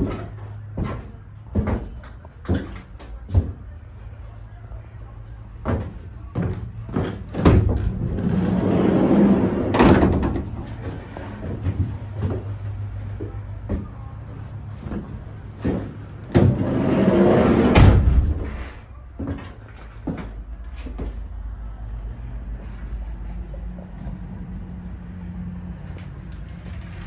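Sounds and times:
van sliding door rolling: 0:07.0 - 0:12.4, 0:15.6 - 0:18.8
door slamming shut: 0:09.6 - 0:10.5, 0:16.3 - 0:18.7.

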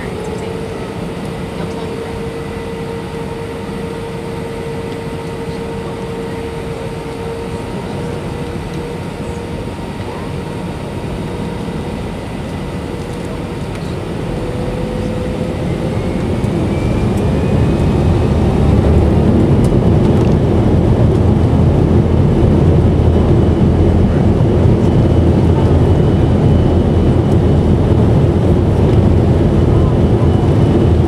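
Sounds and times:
jet engines spooling up: 0:11.0 - 0:31.0.

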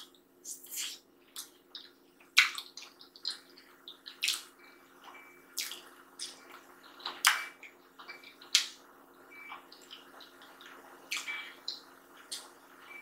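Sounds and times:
faint steady hum: 0:00.0 - 0:13.0
wet eating smacks and clicks: 0:00.5 - 0:04.6, 0:05.5 - 0:08.8, 0:09.6 - 0:12.6.

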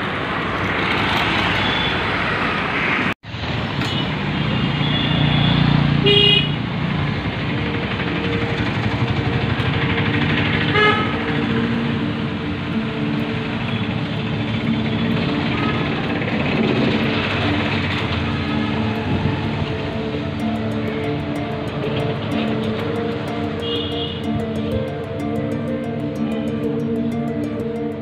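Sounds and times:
street traffic engines: 0:00.0 - 0:28.0
short vehicle horn toots: 0:04.8 - 0:06.6, 0:10.7 - 0:11.1.

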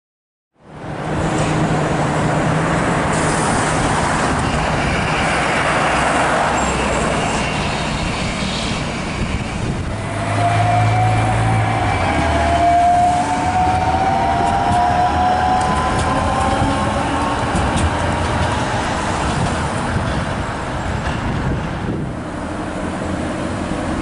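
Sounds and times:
road noise: 0:00.6 - 0:24.0
cars passing: 0:00.7 - 0:24.0
tram motor whine rising: 0:01.1 - 0:20.9.

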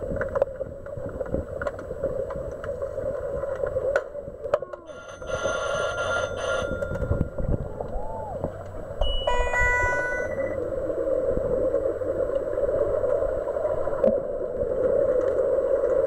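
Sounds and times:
underwater buzzer: 0:04.9 - 0:07.4, 0:09.0 - 0:10.6.

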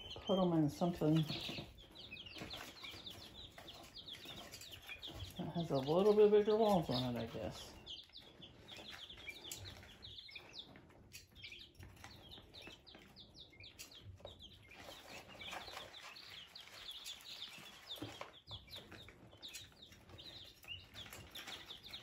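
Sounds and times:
baby chicks peeping: 0:00.0 - 0:22.0.

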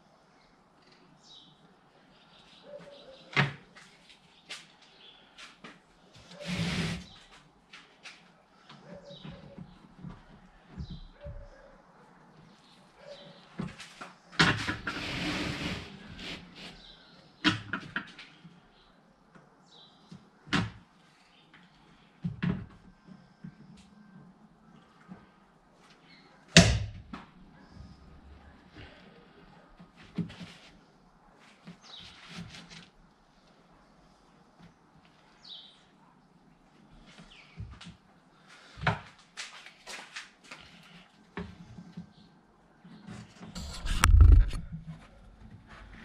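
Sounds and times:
bird chirping: 0:00.4 - 0:03.4, 0:08.8 - 0:09.9.

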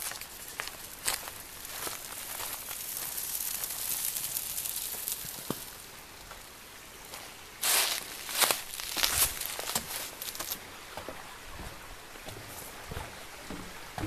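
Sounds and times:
chicken sizzling on a grill: 0:00.0 - 0:10.3
fire crackling: 0:00.0 - 0:10.6.

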